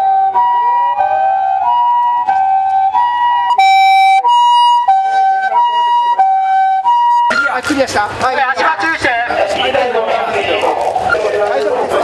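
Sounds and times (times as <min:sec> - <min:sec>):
ambulance two-tone siren: 0:00.0 - 0:07.9.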